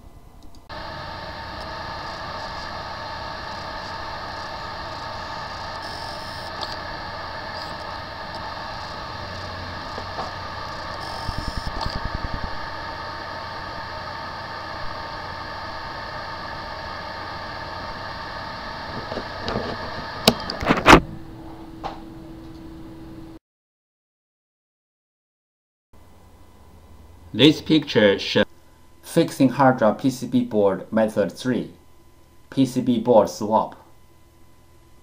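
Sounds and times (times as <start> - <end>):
steady low tone: 0.0 - 19.5
hard drive electrical whine: 0.0 - 23.4, 26.0 - 35.0
hard drive clicks: 0.4 - 12.8.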